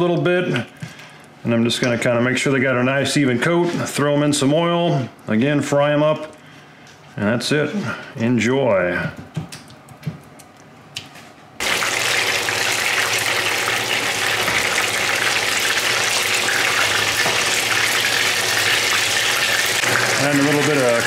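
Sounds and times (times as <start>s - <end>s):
frog legs sizzling in hot oil: 11.6s - 21.0s.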